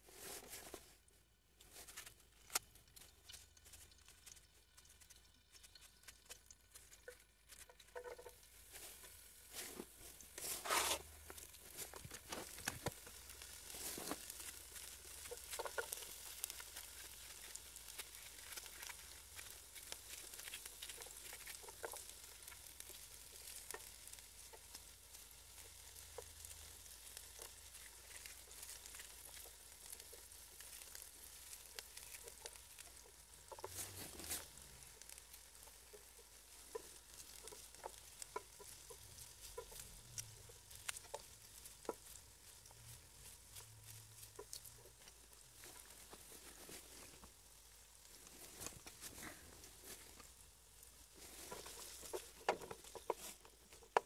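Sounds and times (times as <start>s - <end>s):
food sizzling in a pan: 0.0s - 54.0s
scrapes or knocks: 9.5s - 11.1s.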